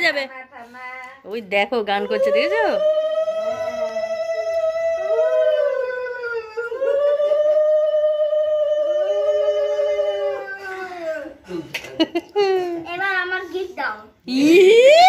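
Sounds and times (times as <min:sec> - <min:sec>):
dog howling: 0:02.0 - 0:11.4
second lower howl: 0:02.2 - 0:11.3.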